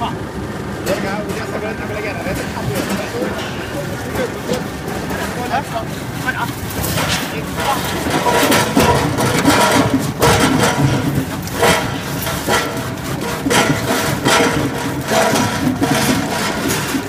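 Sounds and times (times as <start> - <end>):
processing machine running: 0.0 - 17.0
machine knocking: 0.8 - 17.0
pieces clattering in steel drum: 6.5 - 17.0.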